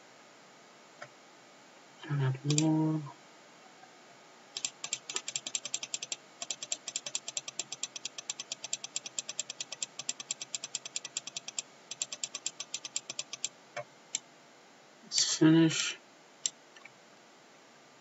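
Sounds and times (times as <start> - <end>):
computer mouse clicking: 4.6 - 13.5.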